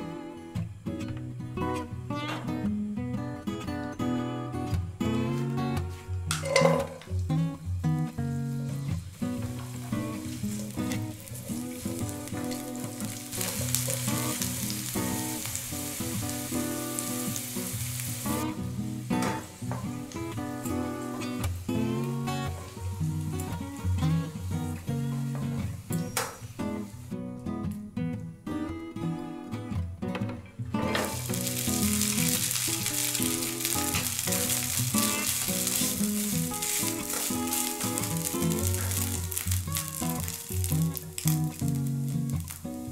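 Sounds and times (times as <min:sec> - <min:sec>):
guitar music: 0:00.0 - 0:42.9
garlic sizzling in oil: 0:05.4 - 0:27.2, 0:30.8 - 0:42.9.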